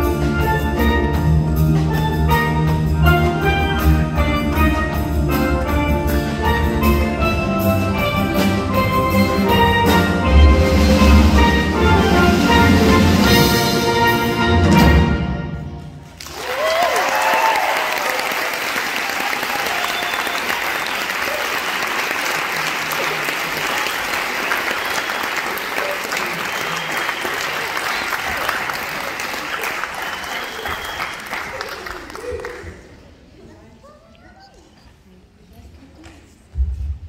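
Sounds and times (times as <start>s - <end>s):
audience applauding: 16.1s - 33.1s
audience cheering: 16.2s - 32.8s.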